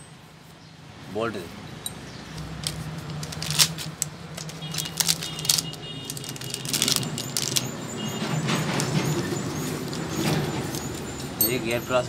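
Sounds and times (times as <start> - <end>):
plastic packaging crinkling: 2.4 - 11.1.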